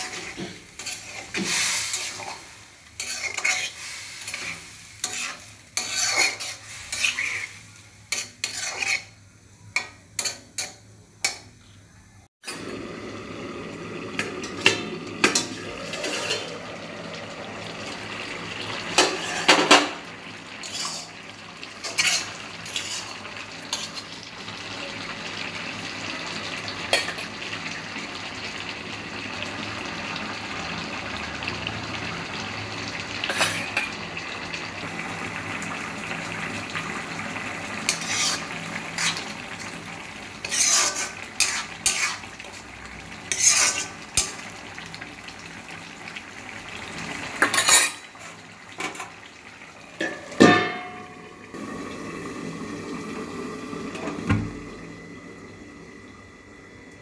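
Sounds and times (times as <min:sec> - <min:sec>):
metal spatula scraping a pot: 0:00.0 - 0:09.2, 0:15.2 - 0:16.6, 0:19.0 - 0:19.8, 0:20.6 - 0:21.2, 0:21.8 - 0:24.1, 0:37.9 - 0:39.3, 0:40.4 - 0:42.3, 0:43.3 - 0:44.4, 0:47.4 - 0:49.0
simmering pot hiss: 0:00.0 - 0:57.0
steel lid clattering: 0:50.0 - 0:51.2.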